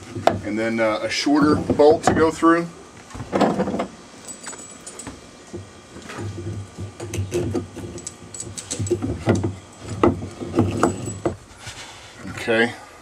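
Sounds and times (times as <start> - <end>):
bolt and nut clicking and rattling: 7.0 - 11.4.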